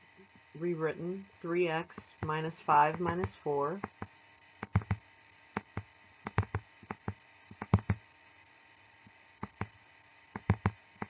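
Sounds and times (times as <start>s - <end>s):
stylus clicking on tablet: 1.9s - 8.0s, 9.4s - 11.0s.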